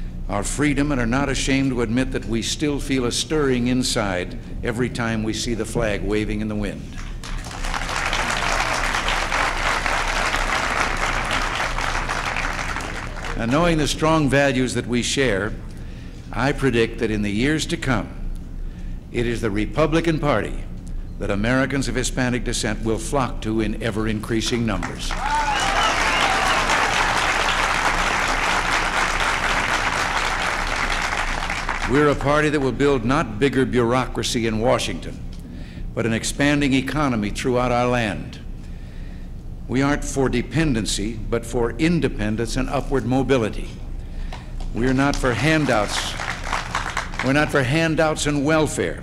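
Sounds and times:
audience applauding: 7.1s - 13.8s, 25.1s - 32.2s, 44.7s - 47.5s
person shouting: 25.2s - 26.9s.

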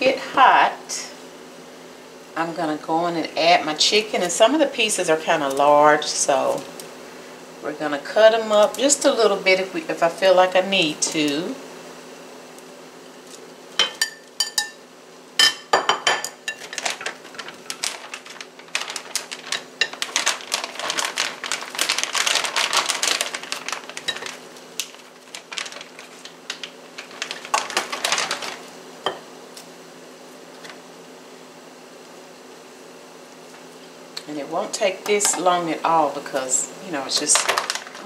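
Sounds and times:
glass bowl clinking on metal pot: 13.8s - 14.8s
plastic food bag crinkling: 16.5s - 28.9s, 37.0s - 38.0s.

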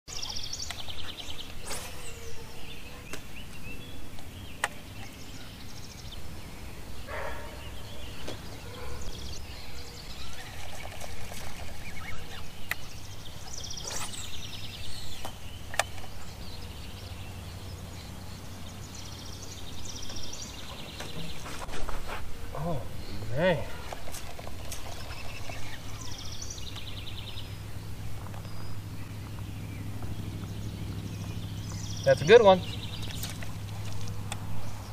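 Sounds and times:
birds trilling and calling: 0.1s - 34.9s
steady low hum: 0.1s - 34.9s
sharp clicks: 15.2s - 16.2s.

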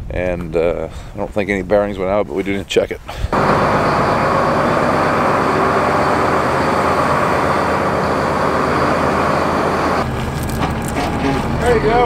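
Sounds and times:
tractor engine running: 3.3s - 12.0s.

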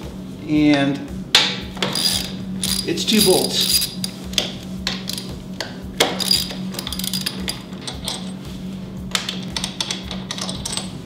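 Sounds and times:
background music: 0.0s - 11.0s
ratchet wrench clicks: 1.8s - 4.2s, 6.0s - 8.3s.

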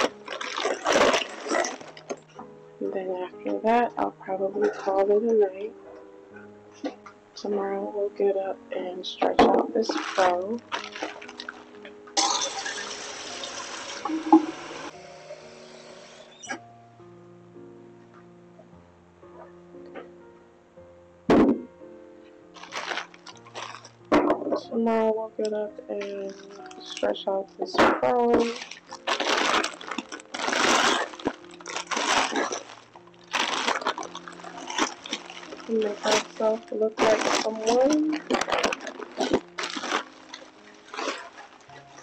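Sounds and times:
water sloshing and splashing: 0.0s - 2.3s, 9.4s - 14.9s, 22.6s - 24.2s, 28.1s - 42.0s
tap water running: 12.4s - 16.3s.

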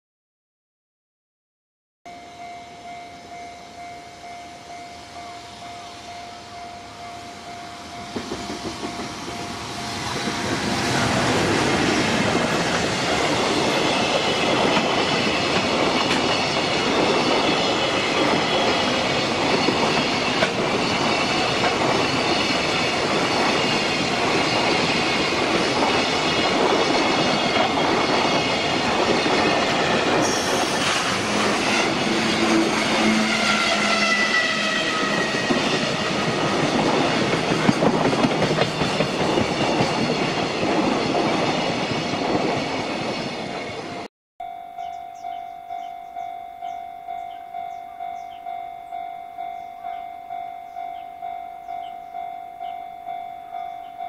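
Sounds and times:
freight train wheels on rails: 2.8s - 44.1s, 44.8s - 54.0s
level crossing bell ringing: 44.4s - 54.0s.

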